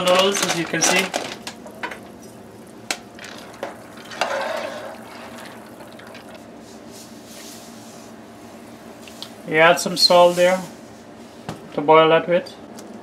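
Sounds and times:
boiling water bubbling: 0:01.3 - 0:06.6.

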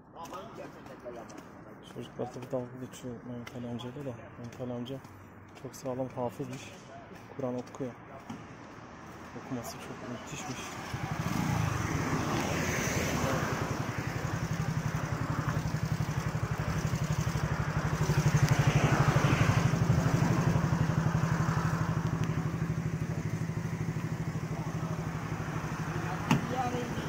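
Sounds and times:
motorcycle engine throbbing: 0:10.8 - 0:27.0.

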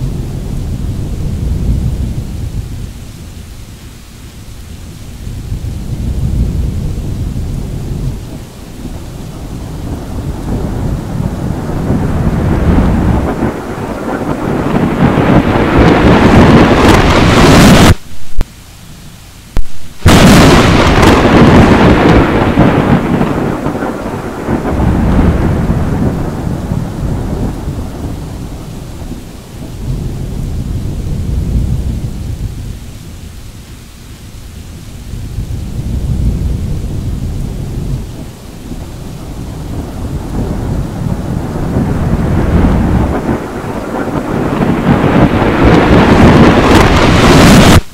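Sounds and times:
thunder crash: 0:00.0 - 0:03.0, 0:05.2 - 0:18.5, 0:19.6 - 0:32.9, 0:35.1 - 0:47.9
thunder crack and rumbling: 0:00.0 - 0:03.6, 0:04.9 - 0:18.5, 0:19.5 - 0:33.5, 0:34.5 - 0:47.9.

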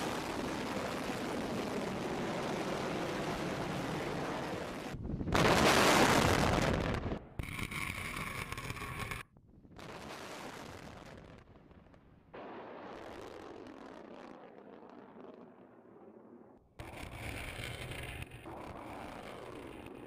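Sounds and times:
rumbling outdoor noise: 0:11.3 - 0:20.0.

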